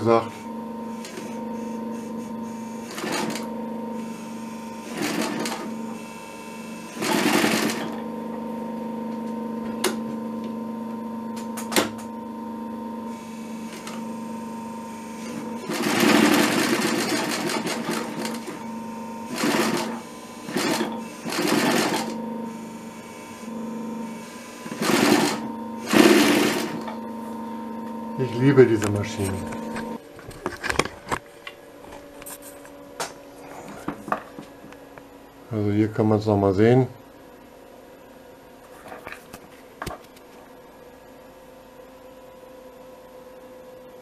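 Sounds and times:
sewing machine motor humming: 0.0 - 30.1
sewing machine stitching leather: 0.9 - 8.2, 13.1 - 27.0.

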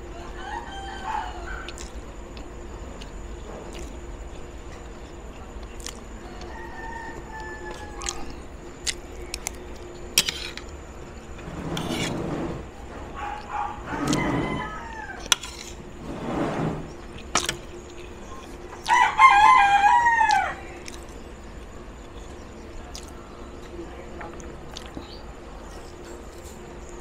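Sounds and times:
rooster crowing: 0.0 - 1.9, 6.2 - 8.5, 13.1 - 16.9, 18.8 - 20.8.

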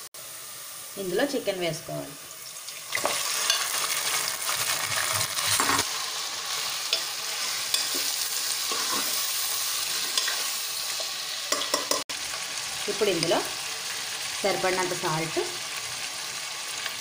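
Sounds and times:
chicken sizzling in hot oil: 0.0 - 17.0
ladle scraping and tapping pan: 8.7 - 9.2.

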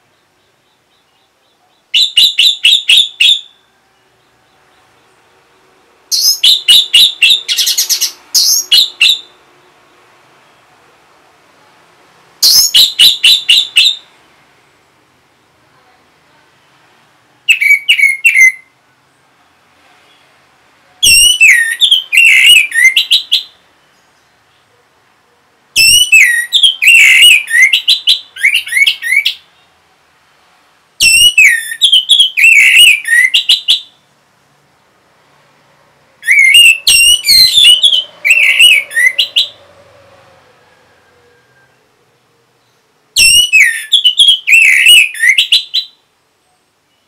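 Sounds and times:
bird singing whistled phrases: 1.9 - 3.6, 6.1 - 9.3, 12.4 - 14.0, 17.5 - 18.7, 21.0 - 23.5, 25.8 - 29.4, 31.0 - 33.9, 36.2 - 39.6, 43.2 - 46.0.

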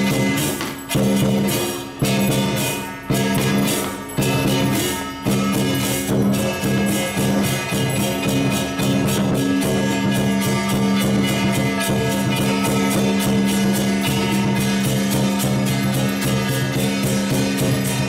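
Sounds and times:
percussion beat: 0.0 - 18.0.

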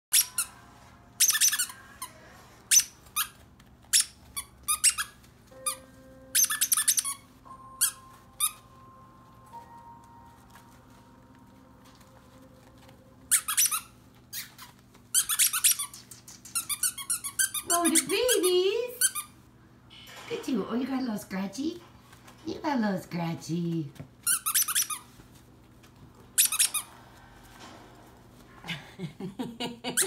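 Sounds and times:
squeaky toy squeaking: 0.1 - 0.6, 1.2 - 2.1, 2.7 - 8.6, 13.3 - 19.3, 24.2 - 25.1, 26.4 - 26.9.

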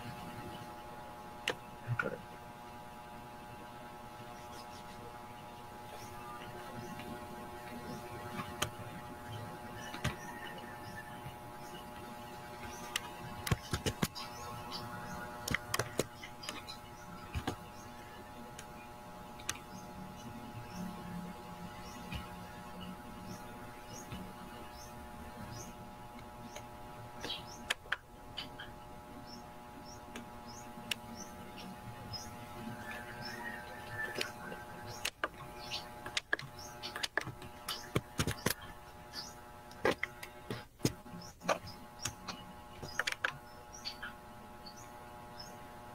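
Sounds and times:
faint electrical hum: 0.0 - 45.9
keyboard and mouse clicks: 12.8 - 14.2, 15.4 - 16.6, 36.0 - 38.6, 39.7 - 43.4
computer mouse clicking: 15.4 - 16.6, 42.8 - 43.4.

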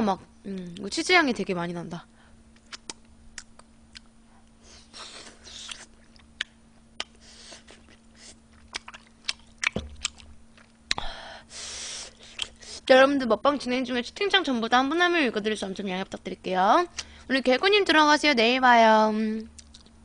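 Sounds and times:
faint steady hum: 0.0 - 20.0
soft wet chewing: 2.6 - 4.6, 5.4 - 11.0, 19.6 - 20.0
mouth clicks: 5.5 - 7.2.

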